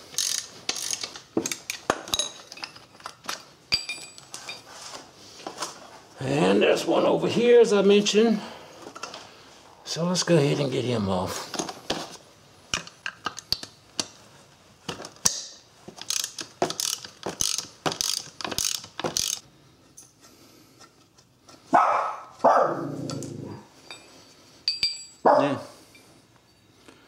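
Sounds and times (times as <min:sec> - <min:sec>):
socket ratchet clicking: 0:00.1 - 0:01.8, 0:15.2 - 0:19.4
dog barking: 0:21.7 - 0:22.9, 0:25.3 - 0:25.7.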